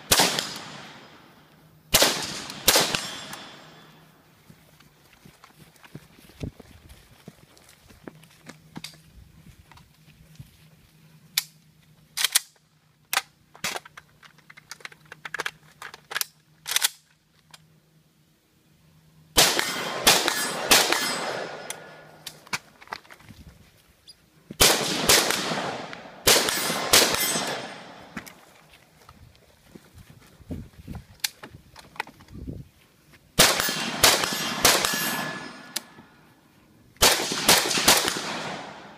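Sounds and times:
quieter sharp cracks: 0:00.0 - 0:04.0, 0:19.4 - 0:22.8, 0:24.6 - 0:28.5, 0:33.4 - 0:36.2, 0:37.0 - 0:38.9
rifle shots with echo: 0:00.0 - 0:04.0, 0:19.4 - 0:22.1, 0:24.6 - 0:28.2, 0:33.4 - 0:36.1, 0:37.0 - 0:38.9.

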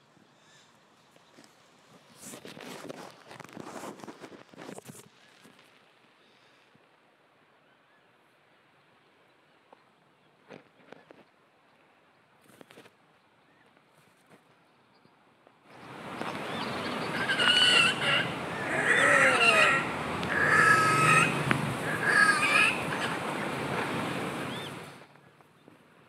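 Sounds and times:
grebes calling: 0:15.8 - 0:25.0.

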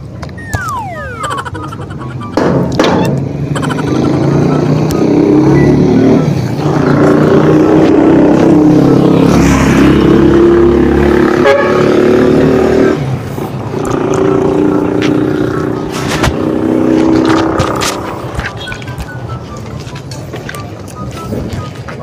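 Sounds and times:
small motorcycle engine passing: 0:03.6 - 0:13.1.

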